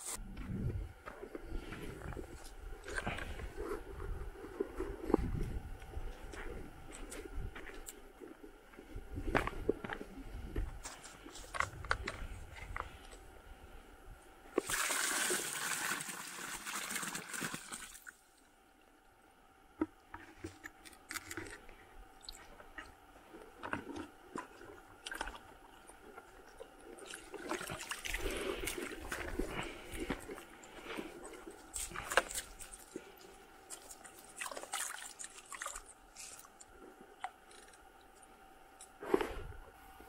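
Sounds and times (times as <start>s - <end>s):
water splashing and trickling: 14.6s - 18.4s, 27.0s - 30.0s, 31.5s - 36.6s.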